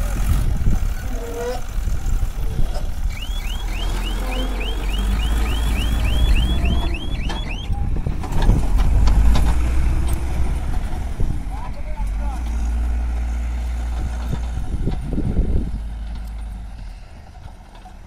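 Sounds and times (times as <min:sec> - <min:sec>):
diesel engine running: 0:00.0 - 0:18.0
reversing alarm chirps: 0:03.1 - 0:07.8.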